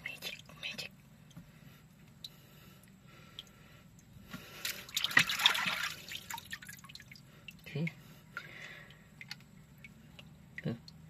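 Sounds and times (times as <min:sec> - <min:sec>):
small drips and clicks: 0:00.0 - 0:11.0
water splashing in basin: 0:04.6 - 0:07.6.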